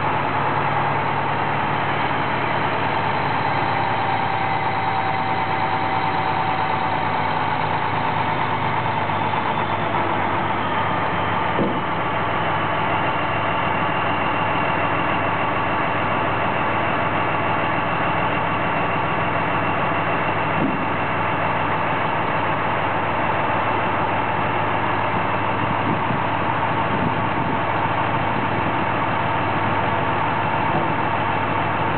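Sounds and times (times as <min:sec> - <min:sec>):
high whine: 0:00.0 - 0:21.7
truck diesel engine idling: 0:00.0 - 0:31.9.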